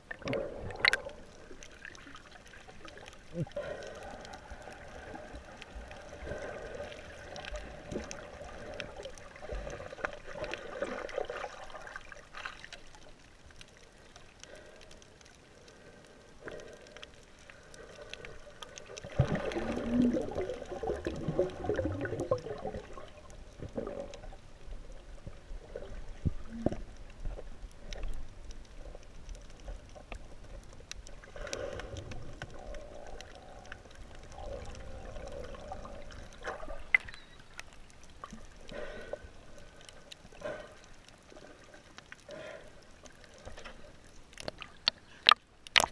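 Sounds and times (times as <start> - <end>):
muffled underwater gurgling: 19.0 - 24.4.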